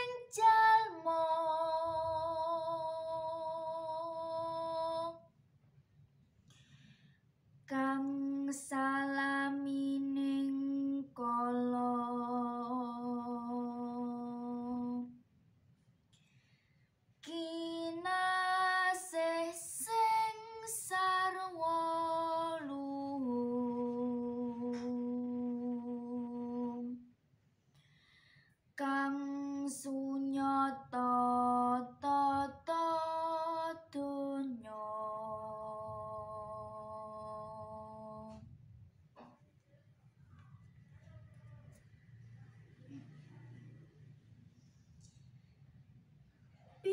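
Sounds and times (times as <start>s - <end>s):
woman singing unaccompanied: 0.0s - 5.3s, 7.7s - 15.2s, 17.2s - 27.0s, 28.8s - 38.4s.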